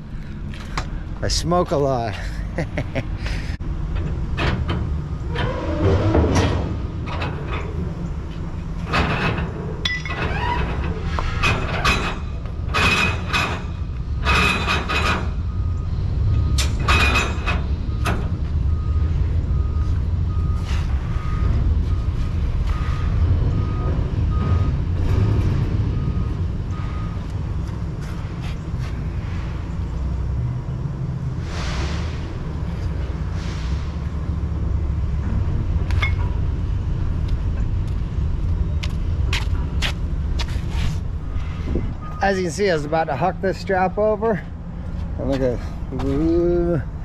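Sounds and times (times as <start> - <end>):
metal chains clanking and rattling: 8.8 - 15.4, 16.6 - 17.7
reversing alarm beeping: 15.4 - 17.2, 17.8 - 25.0, 25.9 - 27.3, 41.2 - 42.5.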